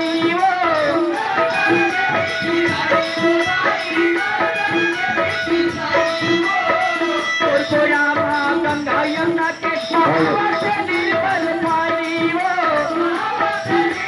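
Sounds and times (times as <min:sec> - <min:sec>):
person singing: 0:00.0 - 0:14.0
steady drum beat: 0:00.0 - 0:14.0
repeating melody line: 0:08.9 - 0:11.8.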